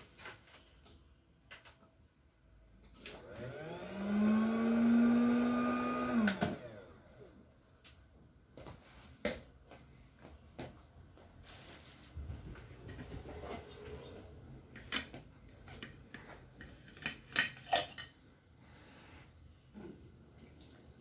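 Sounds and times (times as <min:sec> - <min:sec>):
rubbing and rustling: 0:11.3 - 0:14.4.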